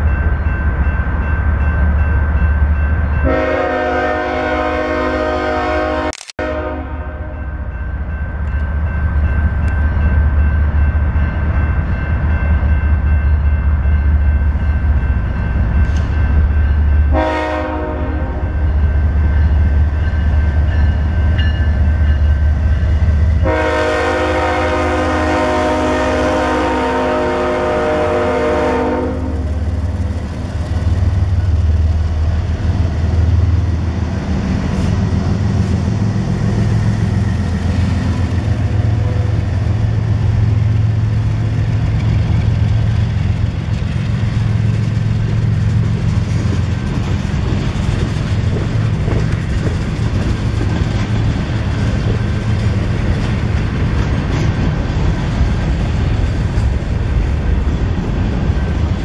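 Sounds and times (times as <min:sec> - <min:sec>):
locomotive engines rumbling: 0:00.0 - 0:59.0
train air horn: 0:03.2 - 0:07.4, 0:17.1 - 0:18.5, 0:23.4 - 0:29.6
train wheels clattering on rails: 0:07.8 - 0:26.1, 0:29.2 - 0:59.0.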